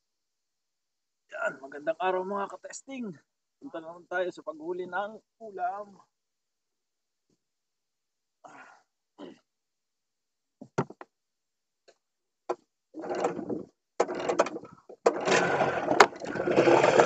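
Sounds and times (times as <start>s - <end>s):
outboard motor starting: 13.0s - 17.0s
recoil cord rasping crank: 13.0s - 17.0s.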